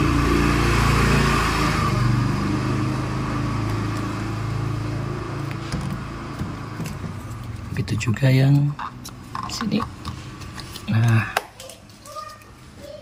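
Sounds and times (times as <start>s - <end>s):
vehicle engine running: 0.0s - 10.9s.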